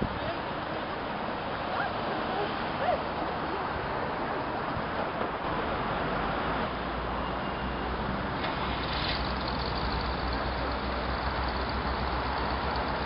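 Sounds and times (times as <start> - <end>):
street traffic noise: 0.0 - 13.0
low engine hum: 7.8 - 13.0.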